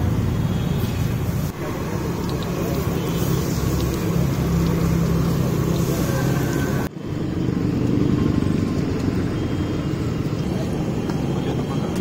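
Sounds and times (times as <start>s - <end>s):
low hum of street traffic: 0.0s - 12.0s
oil sizzling: 0.2s - 6.9s.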